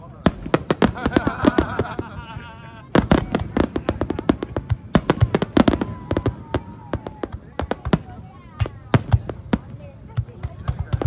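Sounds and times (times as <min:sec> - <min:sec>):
fireworks bangs and cracks: 0:00.0 - 0:11.0.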